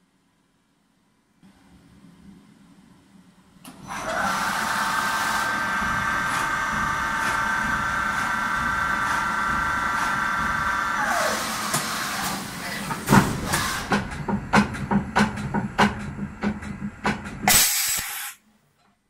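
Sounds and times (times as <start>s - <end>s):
machine motor whine: 3.8s - 14.1s.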